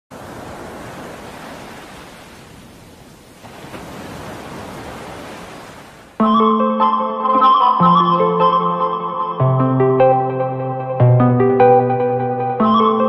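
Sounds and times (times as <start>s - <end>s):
music: 6.2s - 13.0s.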